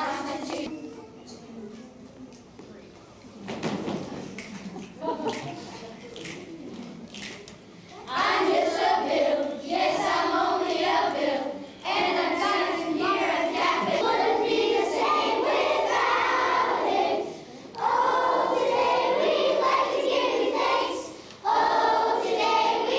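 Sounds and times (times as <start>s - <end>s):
children's choir singing: 0.0s - 1.5s, 8.0s - 22.9s.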